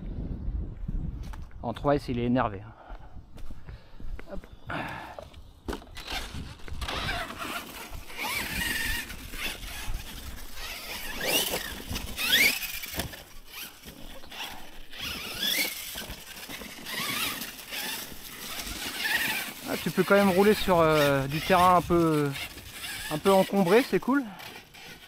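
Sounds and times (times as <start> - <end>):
truck crossing uneven ground: 5.7 - 25.0
electric motor whine: 5.9 - 25.0.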